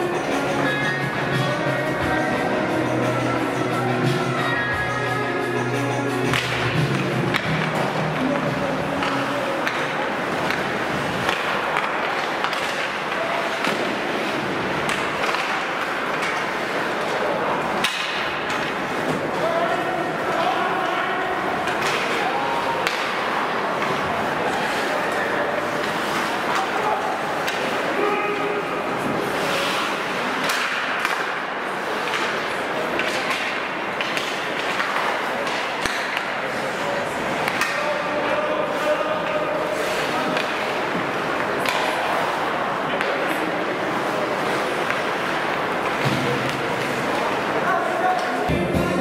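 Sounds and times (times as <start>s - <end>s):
hockey sticks and puck clacking: 0.0s - 49.0s
skates scraping ice: 0.0s - 49.0s.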